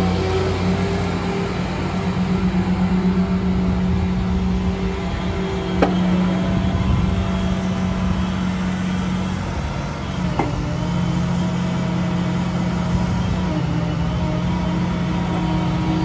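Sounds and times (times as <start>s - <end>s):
excavator engine running: 0.0s - 16.0s
hydraulic whine: 0.0s - 16.0s
brief knock: 5.8s - 6.2s.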